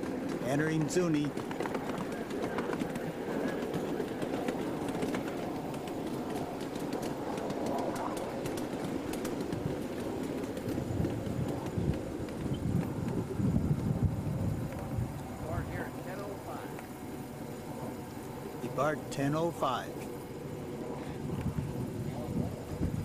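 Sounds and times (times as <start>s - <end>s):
wheel clicks on rails: 0.0s - 17.0s
miniature train rumbling on track: 0.0s - 23.0s.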